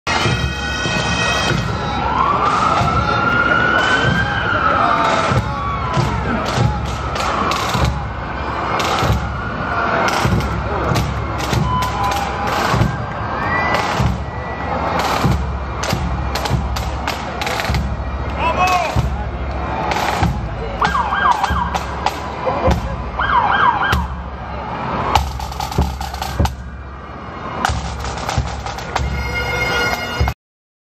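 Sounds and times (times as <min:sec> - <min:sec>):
crowd noise: 0:00.1 - 0:30.4
siren wailing: 0:00.6 - 0:15.2, 0:20.8 - 0:22.0, 0:23.1 - 0:24.4.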